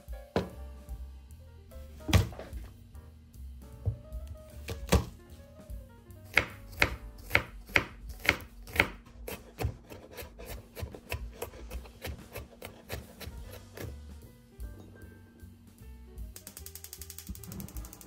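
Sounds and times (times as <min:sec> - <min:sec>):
knife chopping on cutting board: 0:02.0 - 0:02.6, 0:04.6 - 0:05.2, 0:06.3 - 0:14.0.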